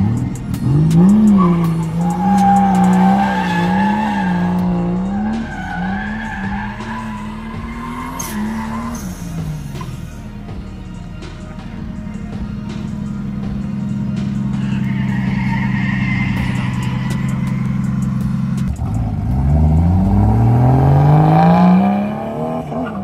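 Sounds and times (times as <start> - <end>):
car engine revving: 0.0 - 23.0
tyre squeal: 0.9 - 10.0, 14.4 - 18.9.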